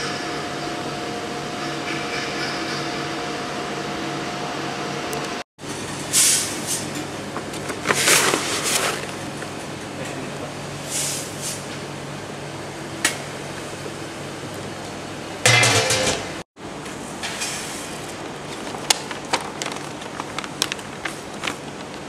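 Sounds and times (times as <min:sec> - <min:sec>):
plastic bag crinkling: 0:18.5 - 0:22.0.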